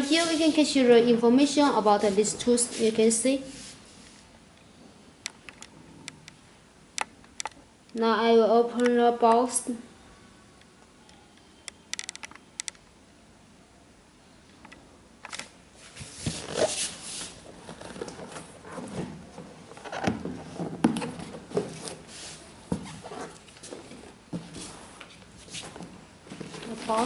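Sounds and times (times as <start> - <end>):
cardboard scraping and rubbing: 0.0 - 0.6, 15.9 - 27.0.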